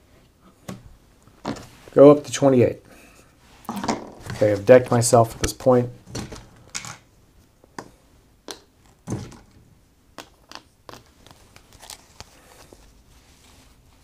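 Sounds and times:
playing cards tapping and rustling: 10.2 - 12.8.

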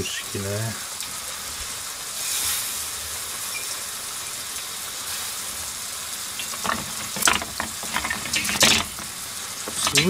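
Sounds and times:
water boiling with sizzling hiss: 0.0 - 10.0
chopsticks clicking on metal basket: 6.4 - 10.0.

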